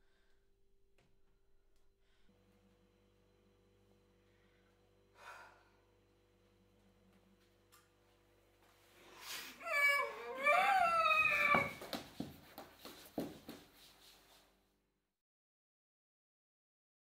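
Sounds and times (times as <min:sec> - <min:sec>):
woman screaming: 0:09.6 - 0:12.0.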